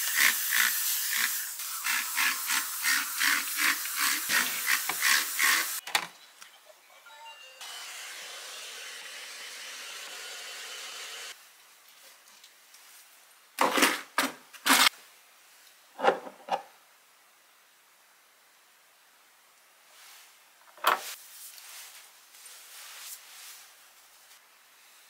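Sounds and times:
steady hiss: 0:18.5 - 0:25.0.

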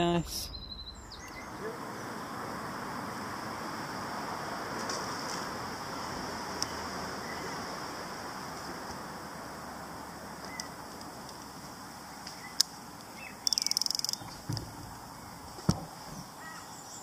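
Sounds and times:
outdoor background hiss: 0:00.0 - 0:17.0
faint bird chirps: 0:00.2 - 0:02.4, 0:13.2 - 0:14.4
sharp little clicks: 0:13.4 - 0:14.4.

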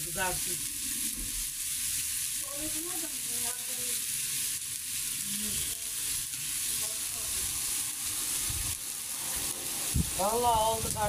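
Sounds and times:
chicken sizzling on griddle: 0:00.0 - 0:11.0.

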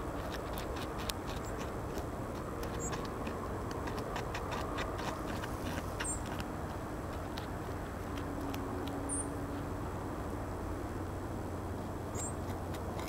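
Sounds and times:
beaver gnawing wood: 0:00.0 - 0:10.0, 0:12.2 - 0:13.0
low background noise: 0:00.0 - 0:13.0.

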